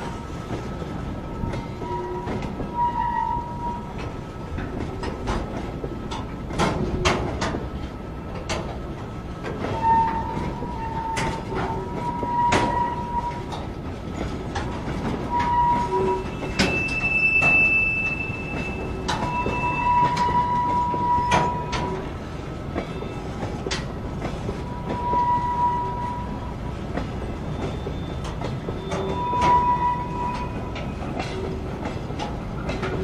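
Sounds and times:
high metallic squeals: 1.4s - 4.0s, 9.7s - 13.6s, 15.3s - 22.1s, 24.6s - 26.5s, 27.4s - 31.5s
train wheels knocking over rail joints: 3.4s - 33.0s.

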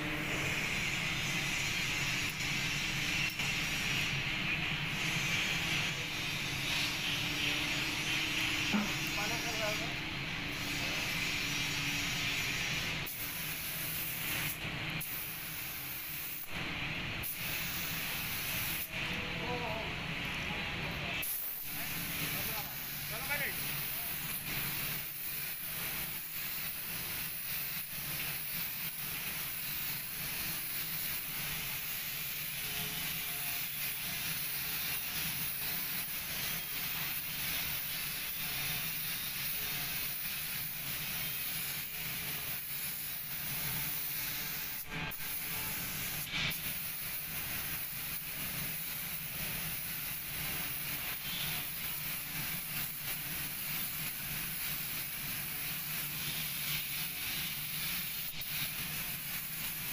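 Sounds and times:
paint spray gun hissing: 0.0s - 20.4s, 21.0s - 59.9s.

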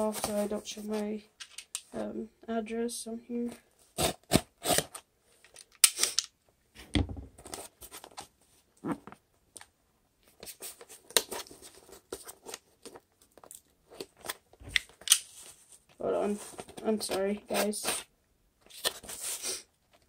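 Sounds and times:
label ripping off cardboard: 4.0s - 5.0s.

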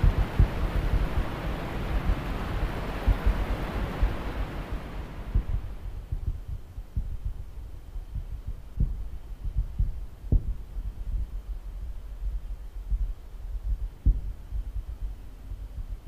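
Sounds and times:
low rumble with thumps and crackles: 0.0s - 16.0s.

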